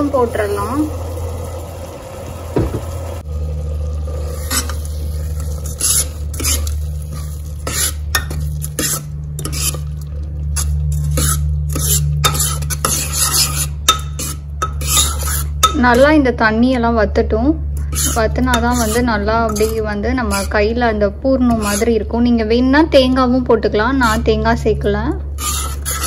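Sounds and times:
steady low hum: 0.0s - 26.0s
metal spoon scraping a pot: 4.2s - 16.2s, 17.7s - 22.1s, 23.9s - 24.4s, 25.2s - 26.0s.

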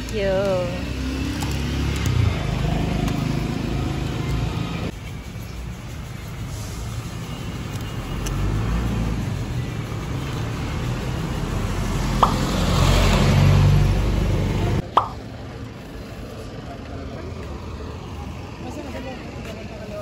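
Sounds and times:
traffic engine rumble: 0.0s - 20.0s
vehicle passing close: 8.2s - 14.9s.

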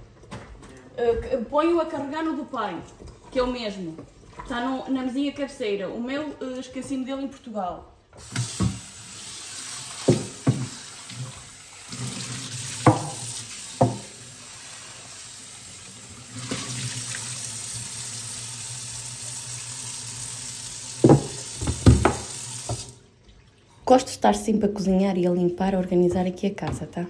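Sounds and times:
tap water running into sink: 8.2s - 23.4s
wood knocking against sink: 10.0s - 10.8s, 12.8s - 14.1s, 21.0s - 22.9s.

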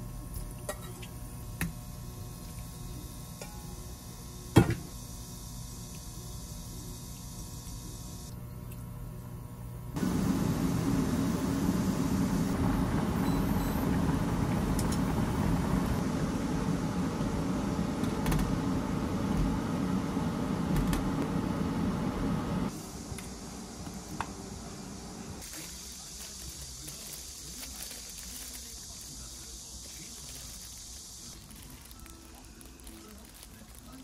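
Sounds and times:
room noise: 10.0s - 34.0s
water boiling in a pot: 10.0s - 34.0s.

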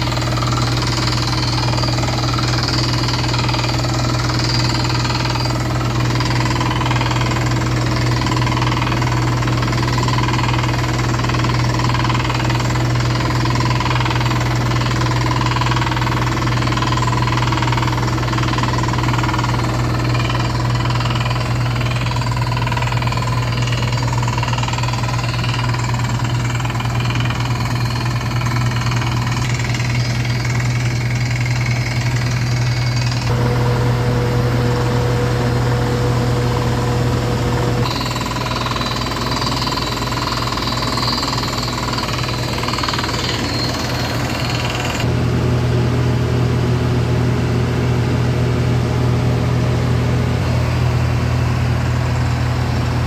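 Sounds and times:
rock drill hammering: 0.0s - 33.4s, 37.8s - 45.1s
low engine hum: 33.2s - 37.9s.

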